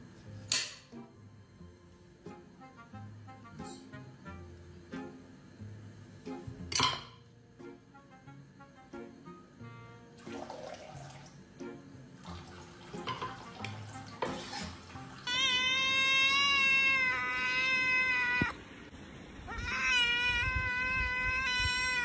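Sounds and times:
quiet background music: 0.0 - 18.6
kitten meowing: 15.2 - 18.6, 19.5 - 22.0.

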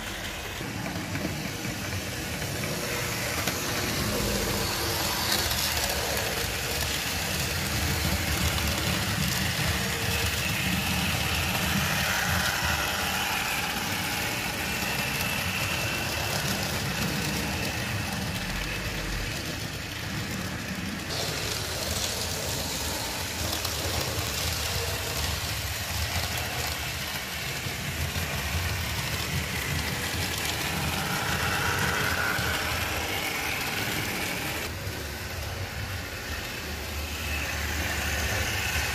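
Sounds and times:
model train motor humming: 0.0 - 38.9
wheels rolling on rails: 0.0 - 38.9.

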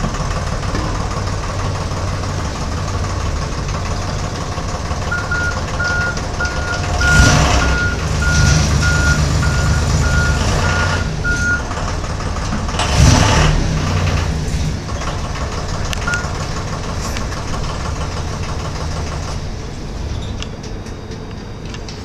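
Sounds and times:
tow tug engine running: 0.0 - 22.0
short reversing beep: 5.1 - 11.7.

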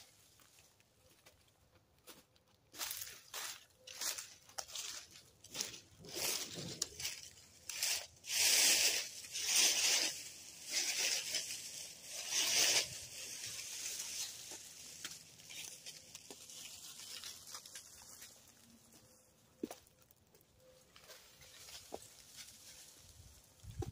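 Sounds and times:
dry plants rustling: 0.0 - 23.9.

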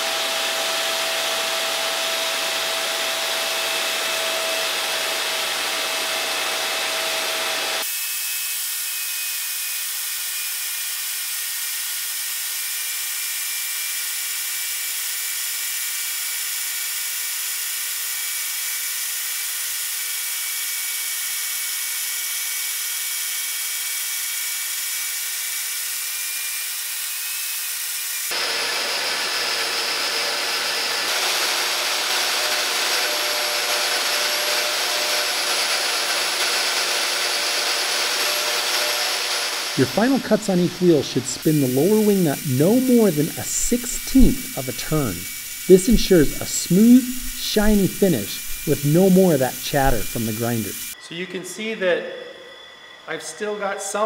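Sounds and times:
grinder grinding steel: 25.1 - 51.0.

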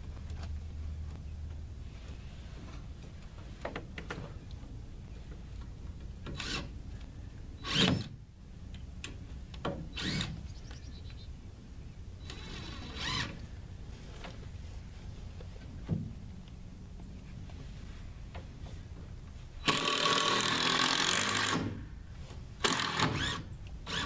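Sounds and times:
cordless drill driving screws: 7.6 - 8.1, 10.0 - 10.4, 12.2 - 13.4, 19.6 - 21.8, 22.6 - 24.0.

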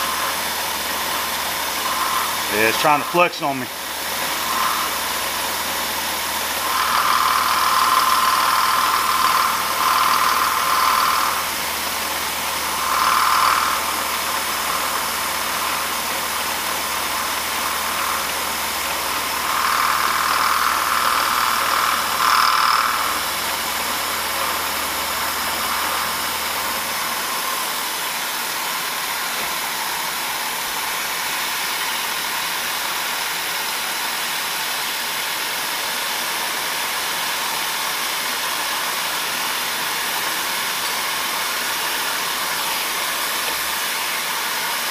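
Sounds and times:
milling machine cutting metal: 0.0 - 27.9
high-pitched squeal: 1.8 - 5.3.

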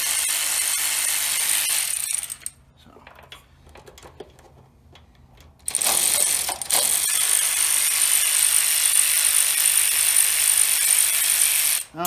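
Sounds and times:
electric ratchet whining: 0.0 - 2.6, 5.6 - 12.0.

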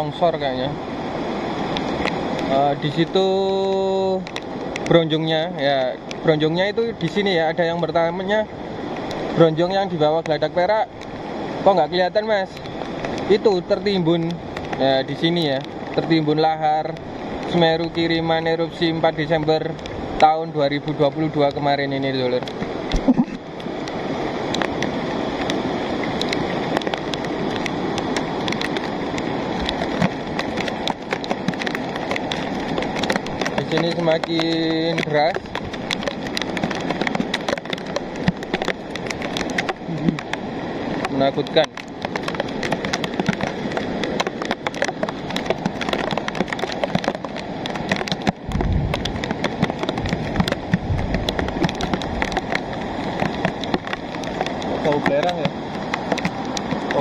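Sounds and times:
raindrops ticking close by: 0.0 - 57.0
rush of flood water: 0.0 - 57.0
steady rain: 0.0 - 57.0
deep rumble: 48.4 - 49.2.

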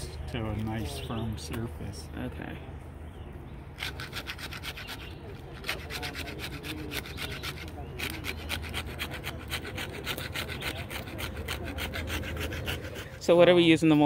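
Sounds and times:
scraper rasping over bark: 3.8 - 13.8.

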